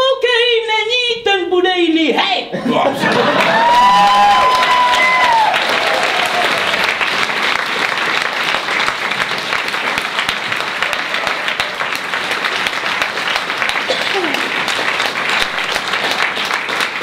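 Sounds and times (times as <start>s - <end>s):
audience applauding: 3.0s - 17.0s.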